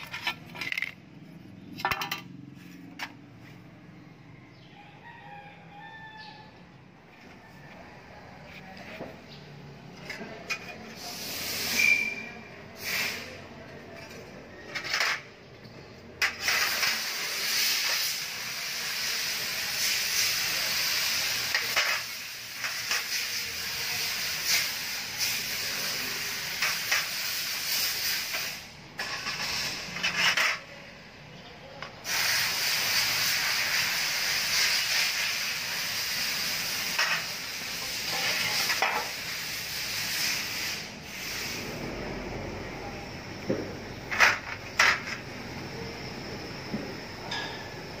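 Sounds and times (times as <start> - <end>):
steady hiss: 11.0 - 13.4, 16.2 - 30.5, 32.0 - 41.9.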